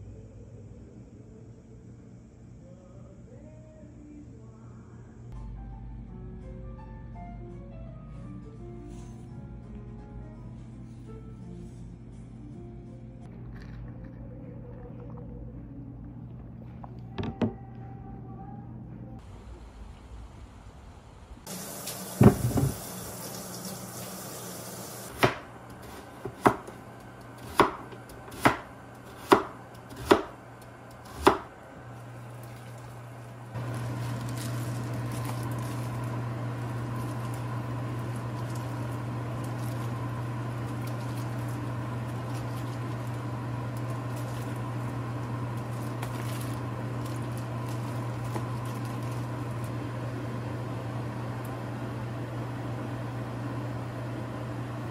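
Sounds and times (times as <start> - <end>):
kitchen appliance hum: 8.2 - 54.9
knife chopping on cutting board: 25.1 - 26.8, 27.4 - 30.4, 31.0 - 31.5.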